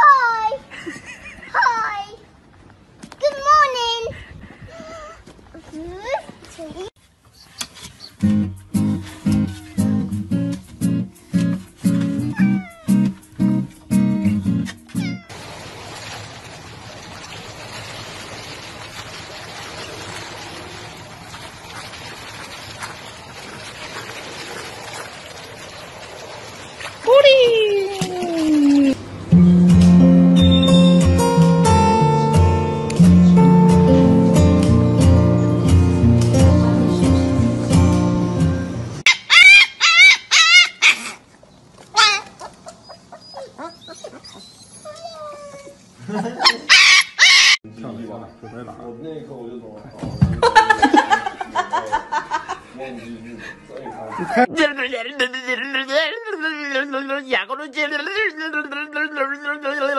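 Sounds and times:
puppy whining: 9.2s - 10.1s, 12.1s - 13.2s, 14.8s - 15.3s, 42.0s - 45.8s
puppy yelping: 12.2s - 13.2s, 14.9s - 15.3s, 39.0s - 41.3s, 41.9s - 45.8s, 46.4s - 47.6s
pool water splashing: 15.1s - 29.3s, 50.4s - 52.9s.

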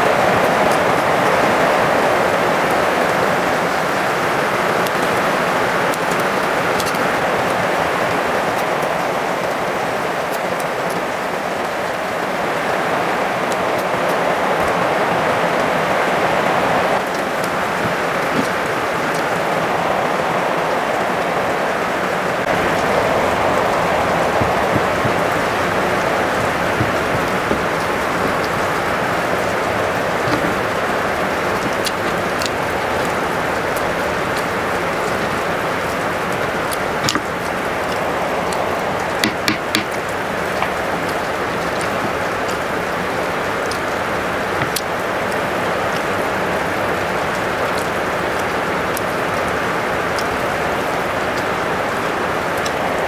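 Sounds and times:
steady rushing noise: 13.0s - 45.2s.

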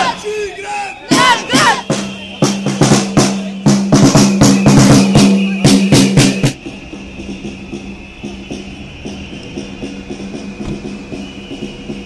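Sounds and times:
crowd shouting: 0.0s - 6.9s
drums beating fast: 1.1s - 12.0s.

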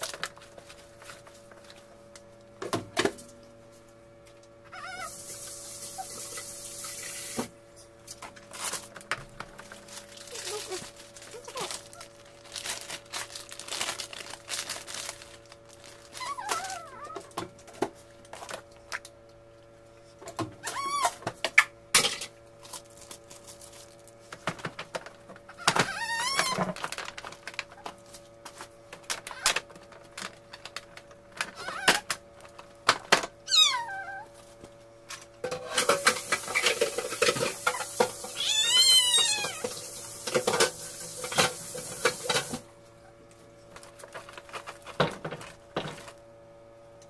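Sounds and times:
plastic bag crinkling: 0.0s - 1.9s, 8.4s - 17.2s, 22.6s - 33.7s, 43.7s - 46.2s
items clicking and knocking: 24.3s - 33.3s, 43.7s - 46.2s.

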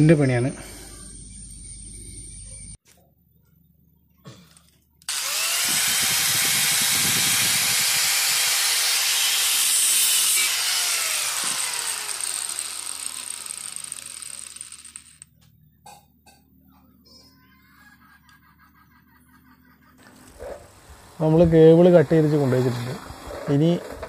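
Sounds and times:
angle grinder cutting cable: 5.1s - 15.3s.

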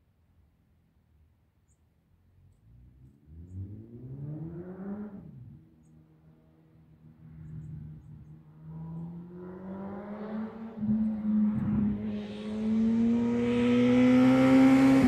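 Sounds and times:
motorcycle engine accelerating: 9.0s - 15.0s.

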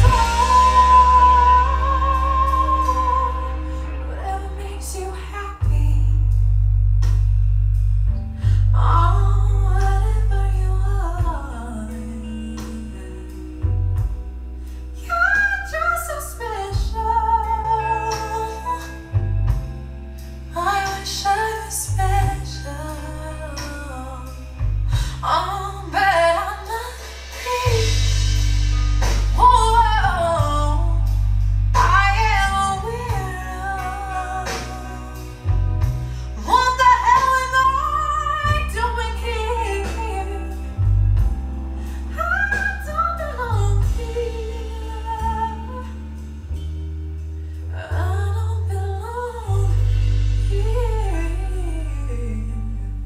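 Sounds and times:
song through loudspeakers: 0.0s - 6.0s, 20.5s - 40.6s
deep bass notes: 0.0s - 53.0s.

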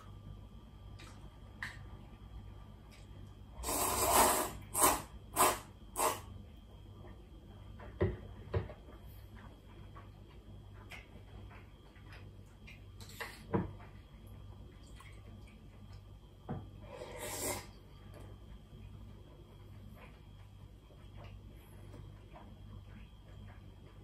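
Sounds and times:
low steady hum: 0.0s - 24.0s
person slurping noodles: 3.6s - 6.3s, 16.9s - 17.8s.

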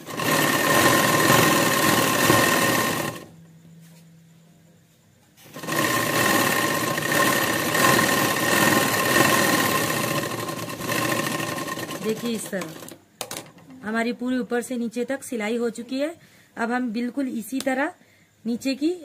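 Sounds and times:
sewing machine stitching: 0.0s - 3.3s, 5.4s - 13.4s
faint low hum: 2.9s - 5.5s.

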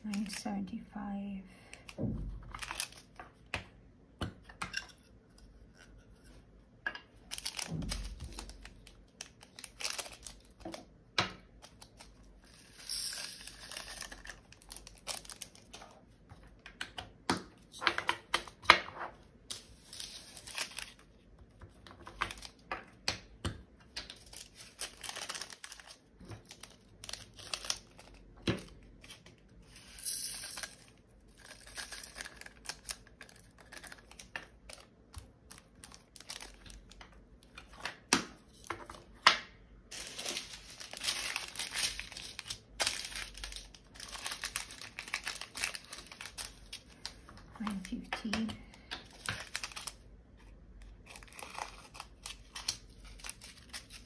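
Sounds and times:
plastic bags crinkling and tearing: 0.0s - 0.5s, 1.8s - 3.2s, 7.2s - 10.8s, 13.4s - 16.0s, 19.5s - 21.1s, 24.1s - 29.4s, 30.6s - 38.1s, 39.9s - 50.1s, 50.9s - 54.0s
beads rattling poured into containers: 12.6s - 14.3s, 29.7s - 32.4s.

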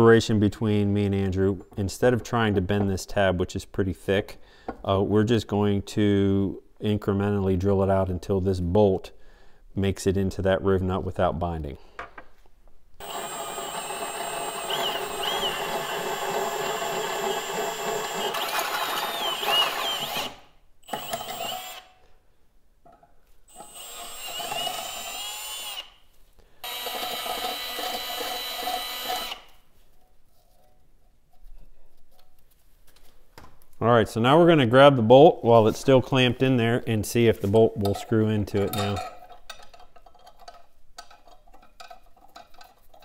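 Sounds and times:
power drill boring steel: 13.0s - 21.9s, 23.5s - 25.9s, 26.6s - 29.5s.

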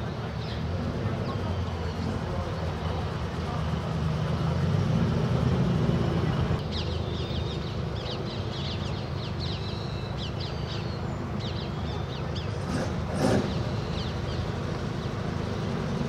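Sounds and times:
bird chirping: 5.9s - 15.2s.

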